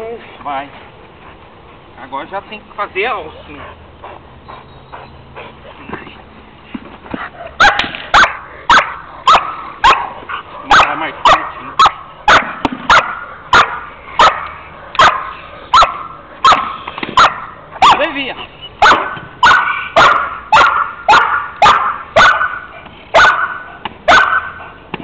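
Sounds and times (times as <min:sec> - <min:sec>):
dog barking: 0:07.6 - 0:18.1, 0:18.8 - 0:24.7.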